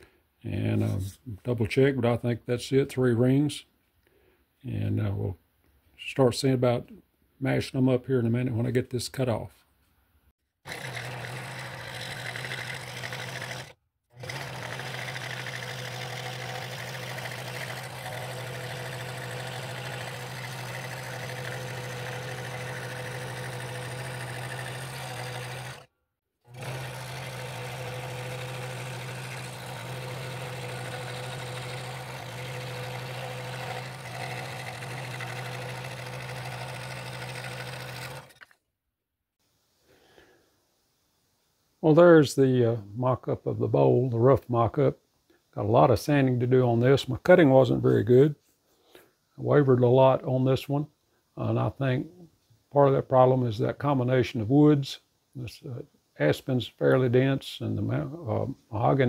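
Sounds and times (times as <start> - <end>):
scroll saw cutting wood: 10.6 - 25.9, 26.5 - 38.6.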